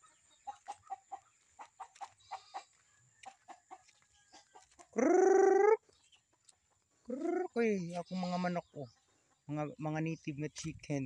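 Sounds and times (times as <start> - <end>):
chickens clucking: 0.0 - 11.0
chicken wavering call: 4.9 - 5.9, 7.1 - 7.6.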